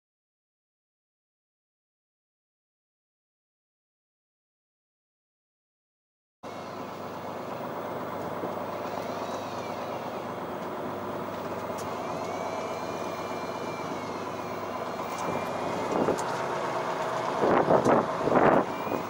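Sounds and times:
boat engine droning: 6.4s - 19.0s
faint high whine: 6.4s - 19.0s.

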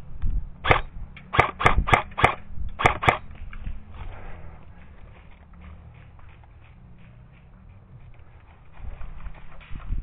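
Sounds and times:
airsoft rifle shots: 0.6s - 3.3s.

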